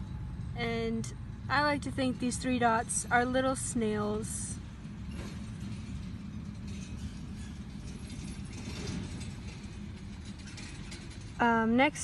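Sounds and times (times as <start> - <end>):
low background rumble: 0.0 - 12.0.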